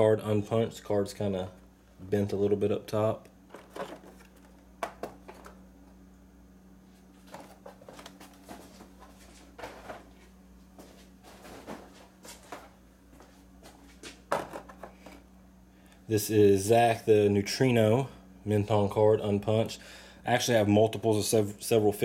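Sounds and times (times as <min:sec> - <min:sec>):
plastic packaging clicks and rustles: 0:03.5 - 0:05.6, 0:07.2 - 0:10.1.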